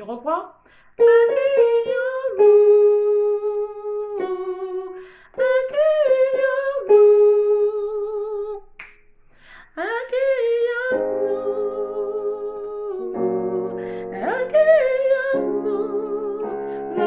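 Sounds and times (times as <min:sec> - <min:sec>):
singer breathing: 0:00.6 - 0:01.0, 0:04.9 - 0:05.4, 0:09.3 - 0:09.8, 0:13.8 - 0:14.2
woman singing soprano: 0:01.0 - 0:08.7, 0:09.7 - 0:17.0.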